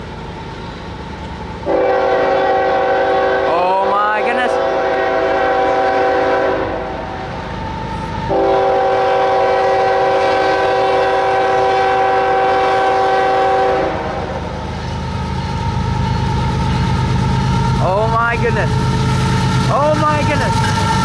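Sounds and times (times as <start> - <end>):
locomotive air horn: 1.6 - 7.2, 8.3 - 14.6.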